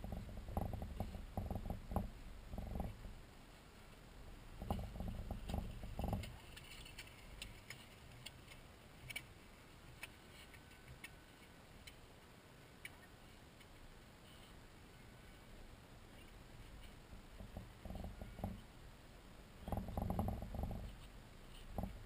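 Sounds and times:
faint clicks and ticks: 0.0 - 3.2, 3.8 - 14.6, 19.6 - 22.0
low rumbles: 0.0 - 7.7.

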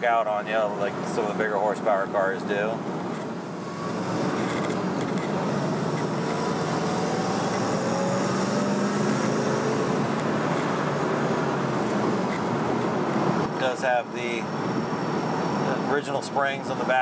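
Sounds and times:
road and wind noise: 0.0 - 17.0
car engine running: 2.6 - 16.0.

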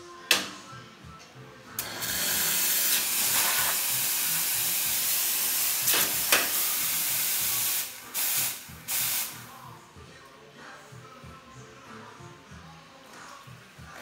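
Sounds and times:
steam wand hissing: 1.8 - 9.4.

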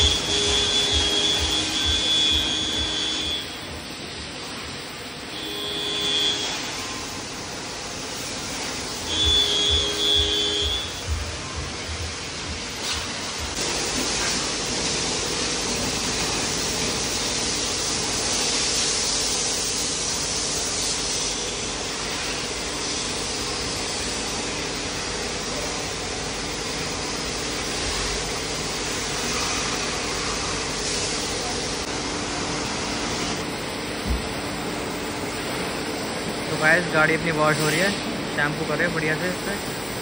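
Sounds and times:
machine hum: 0.0 - 18.2
hose water spraying car: 0.0 - 40.0
water splashing on floor: 12.9 - 17.8.

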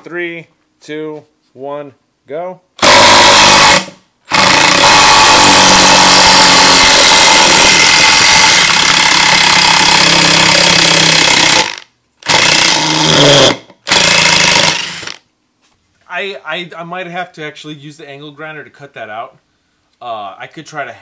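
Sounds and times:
impact driver hammering: 2.8 - 15.2.

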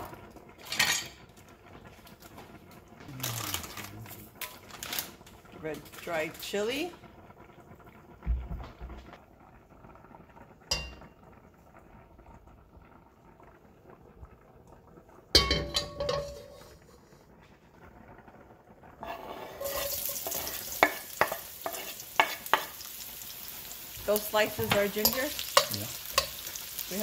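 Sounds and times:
food sizzling in hot oil: 0.0 - 12.7, 15.2 - 17.2, 18.7 - 27.0
cookware knocking and clattering: 15.4 - 16.7
cutting board tapping wok: 20.2 - 22.8, 24.5 - 26.4.

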